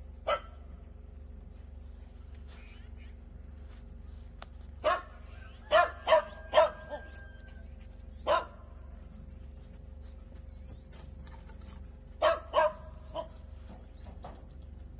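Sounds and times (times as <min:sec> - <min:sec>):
dog barking: 0:00.2 - 0:00.7, 0:04.8 - 0:07.3, 0:08.2 - 0:08.7, 0:12.2 - 0:13.4.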